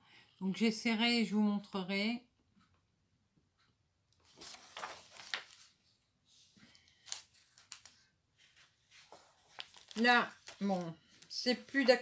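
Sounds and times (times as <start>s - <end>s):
plastic sleeves and paper crinkling: 4.2s - 12.0s.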